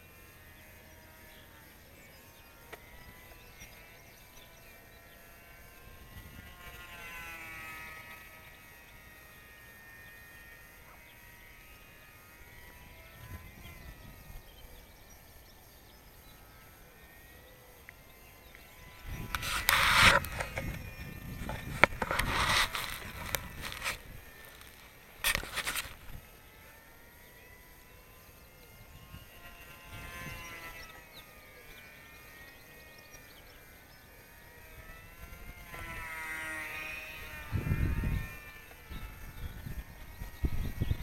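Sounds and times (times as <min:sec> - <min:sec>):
model airplane motor whining: 0:00.0 - 0:41.0
rough rumbling on microphone: 0:19.0 - 0:24.6.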